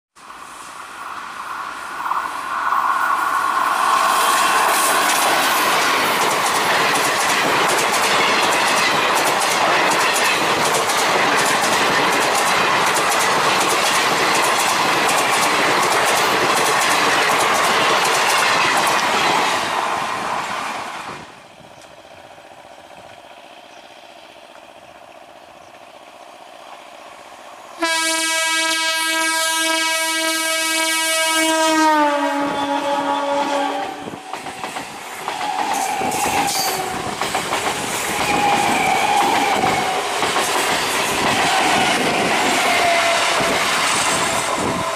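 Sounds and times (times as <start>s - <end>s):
train wheels rushing on rails: 0.2s - 44.9s
clickety-clack over rail joints: 4.2s - 26.9s, 33.8s - 44.9s
train horn chord: 27.8s - 34.2s.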